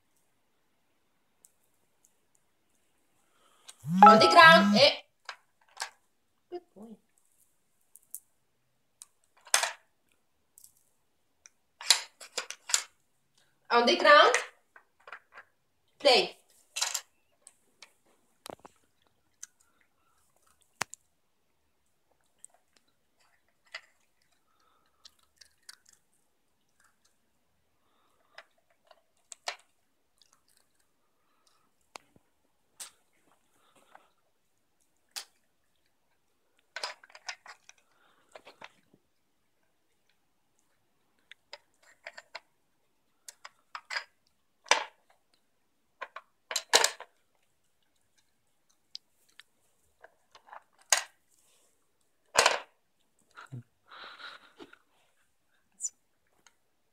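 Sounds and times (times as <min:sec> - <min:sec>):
plastic puzzle pieces clicking: 0:11.8 - 0:12.9, 0:36.8 - 0:37.8
dog crunching treats: 0:23.4 - 0:27.2, 0:28.9 - 0:31.6.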